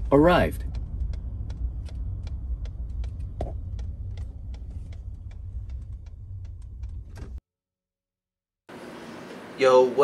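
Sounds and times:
truck engine and road rumble: 0.0s - 7.4s
light ticks: 0.5s - 7.0s.

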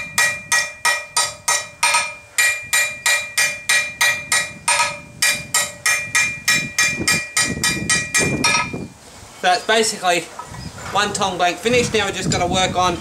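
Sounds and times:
anvil ringing: 0.0s - 8.8s
hammer striking steel on anvil: 0.0s - 8.8s.

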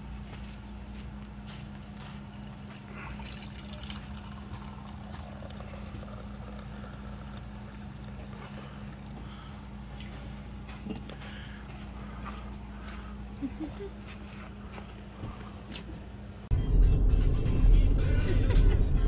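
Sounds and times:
steady low hum: 0.0s - 19.0s
coffee pouring into a mug: 2.3s - 9.2s.

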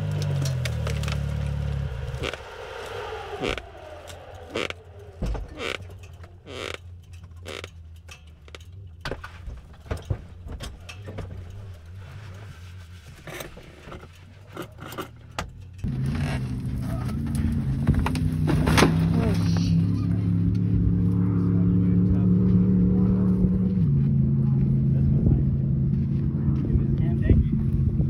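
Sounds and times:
engine running: 0.0s - 28.0s
knocks and metallic rattles: 3.5s - 19.3s.

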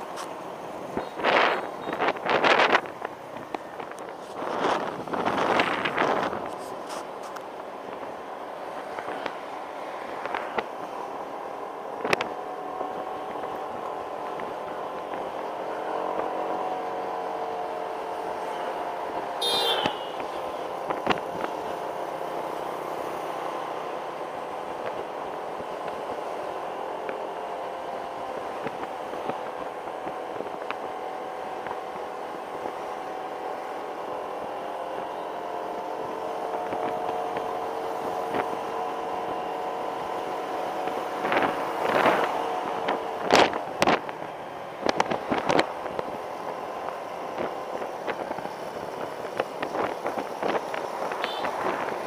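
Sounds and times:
road and wind noise: 0.0s - 52.0s.

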